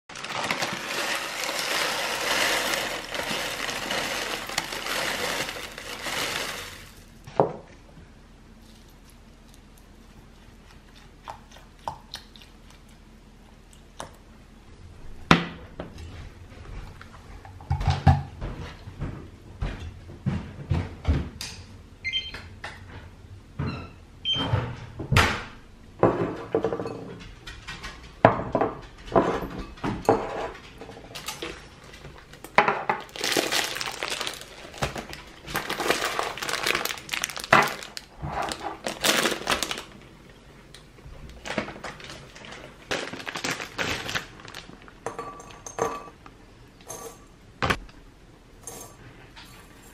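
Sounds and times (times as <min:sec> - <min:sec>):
plastic bag crinkling: 0:00.1 - 0:07.3, 0:31.2 - 0:40.3, 0:41.2 - 0:45.0.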